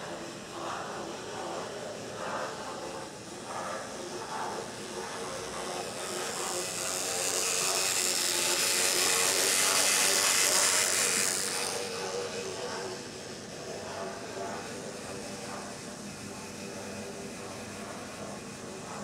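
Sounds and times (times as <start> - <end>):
model steam locomotive rolling: 0.0 - 19.0.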